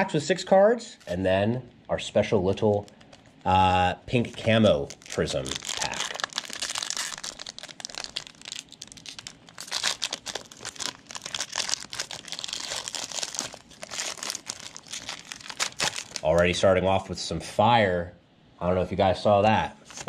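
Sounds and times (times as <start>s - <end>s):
plastic wrappers crinkling and tearing: 2.0s - 16.6s.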